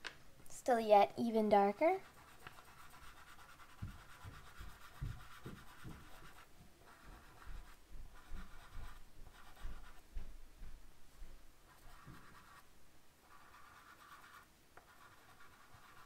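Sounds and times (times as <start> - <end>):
chalk pastel scratching on paper: 1.7 - 10.2, 11.6 - 16.0.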